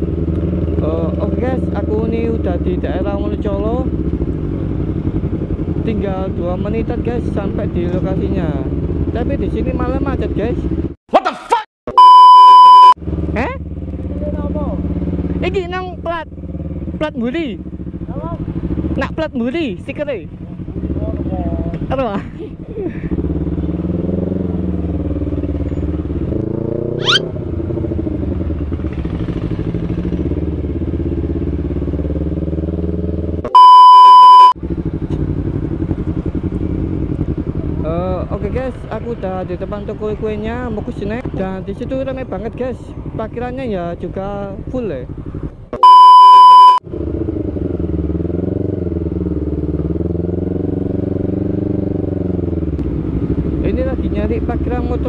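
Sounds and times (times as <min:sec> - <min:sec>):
motorcycle engine running: 0:00.0 - 0:11.0, 0:13.0 - 0:55.0
test-tone beep: 0:11.9 - 0:13.0, 0:27.0 - 0:27.2, 0:33.5 - 0:34.6, 0:45.8 - 0:46.8
short sharp rising sweep: 0:27.0 - 0:27.3.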